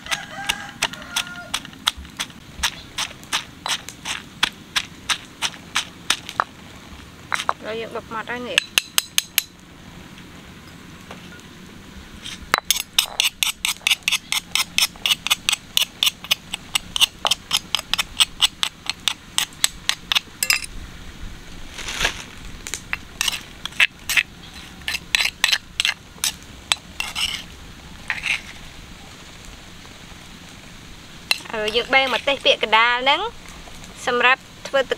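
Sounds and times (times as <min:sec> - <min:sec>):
metal spoon tapping stone mortar: 0:08.6 - 0:09.5, 0:12.6 - 0:20.7.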